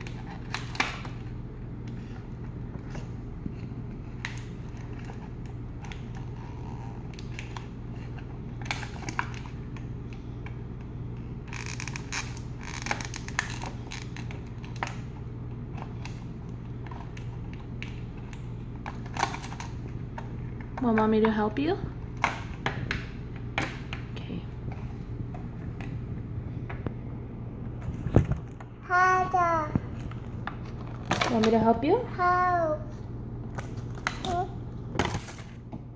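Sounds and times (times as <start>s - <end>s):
plastic packaging crinkling: 11.4s - 15.1s.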